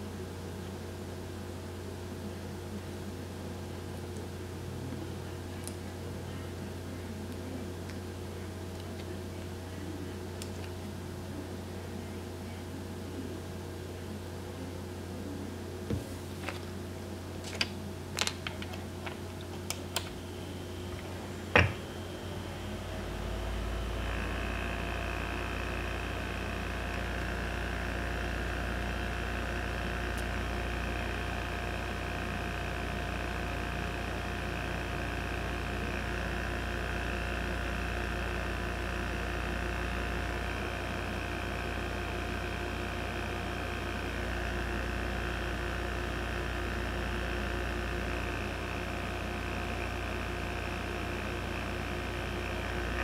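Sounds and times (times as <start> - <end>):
heater fan whirring: 0.0 - 53.0.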